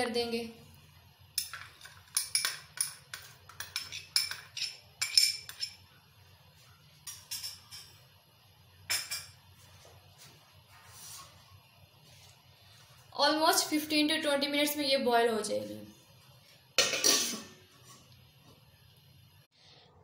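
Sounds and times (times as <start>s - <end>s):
metal spoon clinking on pot: 1.4s - 5.8s, 7.0s - 8.0s.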